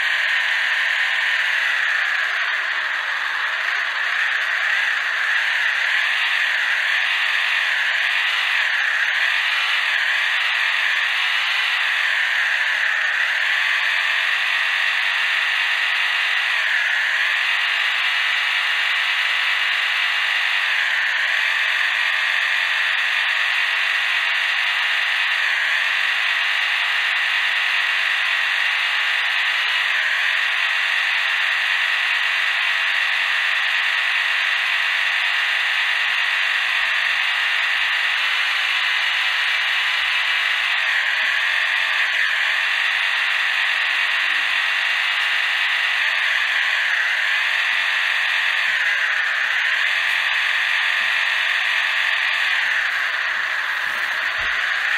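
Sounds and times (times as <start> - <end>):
electric motor whine: 0.0 - 54.9.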